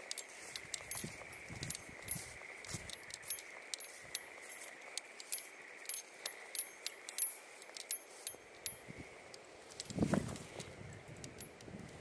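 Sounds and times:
small metal items jingling: 0:00.0 - 0:09.0.

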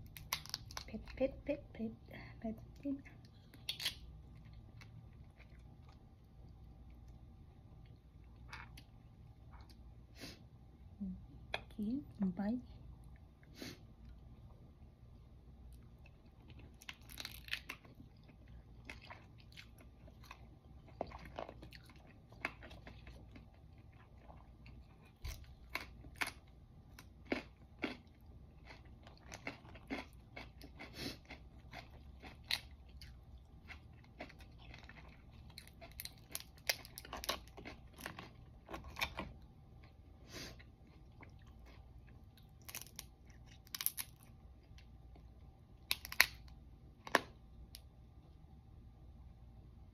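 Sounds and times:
crab shell cracking: 0:00.0 - 0:00.9, 0:03.6 - 0:04.1, 0:16.8 - 0:17.9, 0:42.6 - 0:44.3, 0:45.8 - 0:47.8
chewing: 0:03.3 - 0:07.2, 0:15.7 - 0:44.2.

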